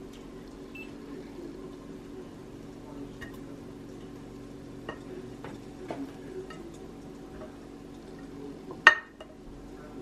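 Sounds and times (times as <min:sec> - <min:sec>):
dishes and utensils clinking: 0:07.4 - 0:09.4.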